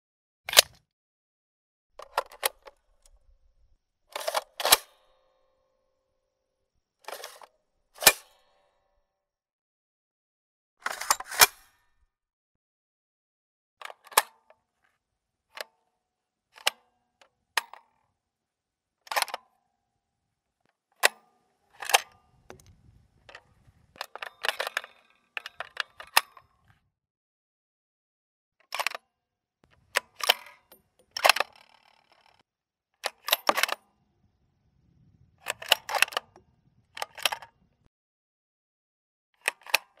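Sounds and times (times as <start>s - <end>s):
gun reloading clicks and clacks: 0.5s - 0.8s, 2.0s - 3.4s, 4.1s - 5.3s, 7.0s - 8.6s, 10.8s - 11.8s, 19.1s - 19.5s, 20.7s - 26.8s, 28.6s - 29.0s, 29.6s - 32.4s, 33.0s - 33.9s, 35.4s - 36.4s, 37.0s - 37.6s, 39.4s - 40.0s.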